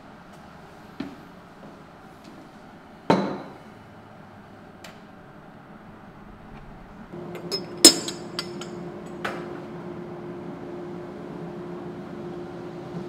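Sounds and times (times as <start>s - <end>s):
steady low hum: 0.0s - 13.0s
ceramic cups and plates clinking: 7.4s - 8.8s.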